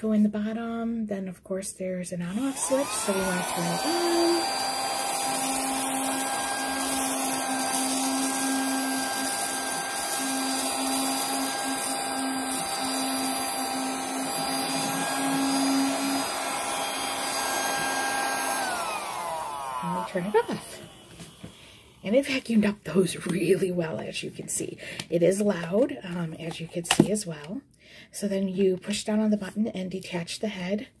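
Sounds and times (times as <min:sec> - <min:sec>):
mini vacuum motor whine: 0:02.3 - 0:22.0.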